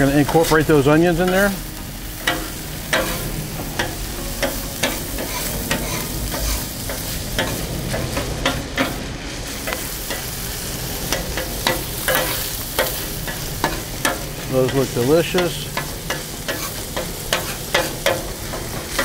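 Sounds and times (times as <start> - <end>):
meat and onions sizzling on griddle: 0.0 - 19.0
metal clacks on steel cooktop: 2.2 - 9.0, 11.1 - 19.0
metal spatulas scraping: 2.2 - 9.0, 14.8 - 18.2.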